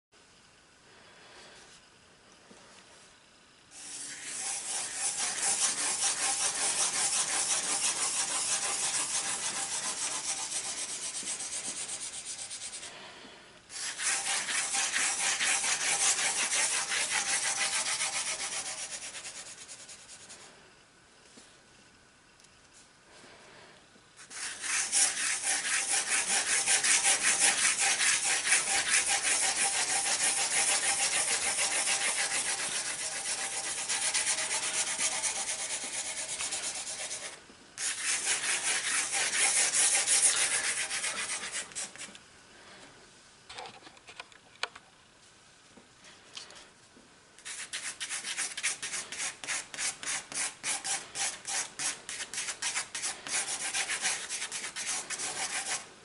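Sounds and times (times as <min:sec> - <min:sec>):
pencil scribbling on paper: 0:03.8 - 0:12.8, 0:13.7 - 0:20.4, 0:24.2 - 0:42.1, 0:47.4 - 0:55.8.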